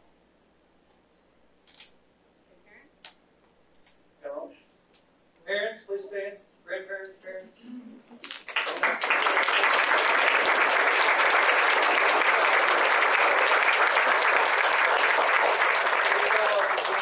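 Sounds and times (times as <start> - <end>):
audience applauding: 8.4 - 17.0.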